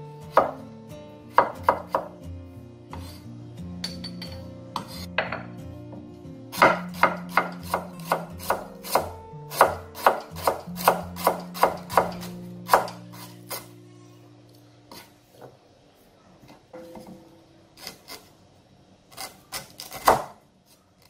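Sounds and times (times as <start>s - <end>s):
knife chopping on wooden board: 0.3s - 0.6s, 1.3s - 2.1s, 6.6s - 13.6s, 19.2s - 20.4s.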